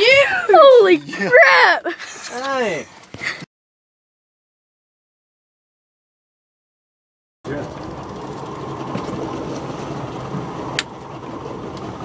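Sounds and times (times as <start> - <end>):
wind: 0.0 - 3.5, 7.4 - 12.0
outboard motor idling: 7.5 - 12.0
water noise: 7.5 - 12.0.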